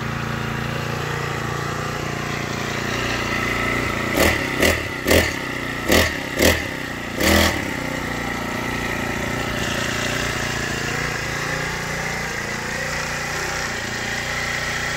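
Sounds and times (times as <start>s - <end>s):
small engine blipping and idling: 0.0s - 14.9s.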